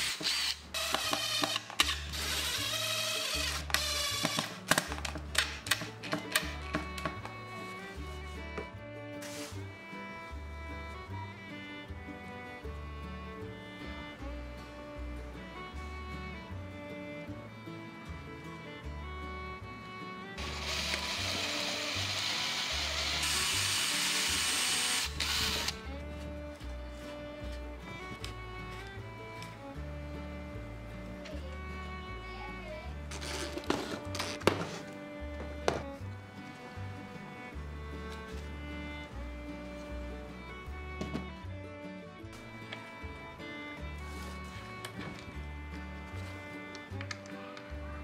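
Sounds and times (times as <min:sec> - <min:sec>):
drill motor whining: 0:00.0 - 0:04.6, 0:20.4 - 0:25.8
background music with bass line: 0:01.8 - 0:48.0.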